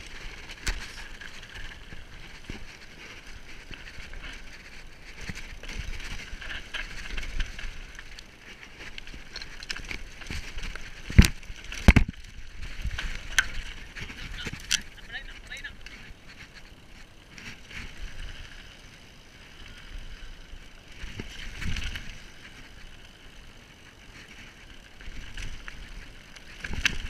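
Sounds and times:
tyres crunching on stones: 0.0 - 18.6
bike rattling: 0.0 - 27.0.

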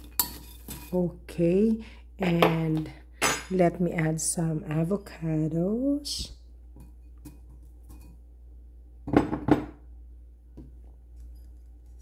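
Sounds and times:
tableware clattering: 3.2 - 3.6.

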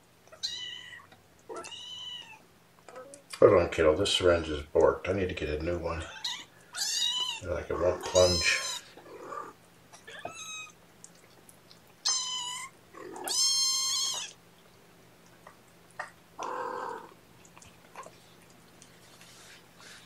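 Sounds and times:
faint steady hum: 0.0 - 20.0
kittens mewing: 0.3 - 3.2, 6.0 - 10.8, 12.0 - 14.4, 15.5 - 17.2.

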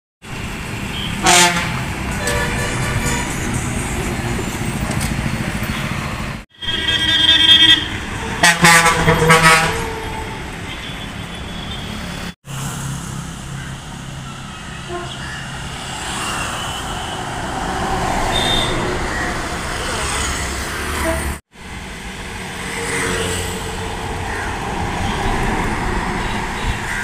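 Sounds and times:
buses passing at speed: 0.2 - 27.0
bus horn blast: 0.9 - 3.6, 6.6 - 12.0, 14.7 - 15.3, 18.2 - 19.2
wavering horn: 14.4 - 15.2.

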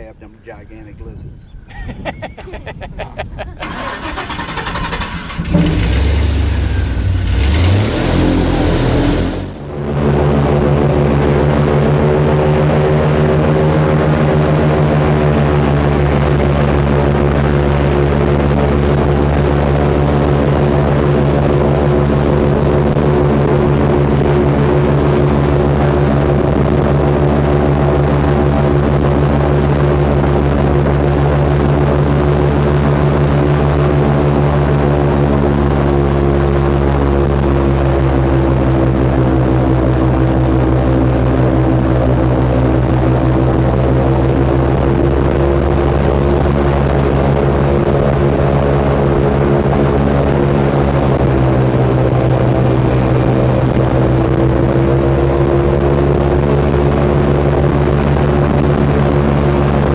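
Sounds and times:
airboat engine and propeller drone: 0.0 - 59.9.

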